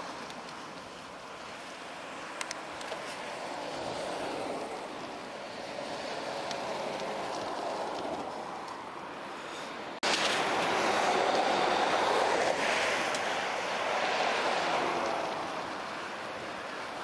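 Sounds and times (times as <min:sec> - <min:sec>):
road traffic: 0:00.0 - 0:17.0
trucks passing: 0:00.0 - 0:17.0
wind rushing over microphone: 0:00.0 - 0:17.0
small sharp clicks: 0:02.4 - 0:03.2.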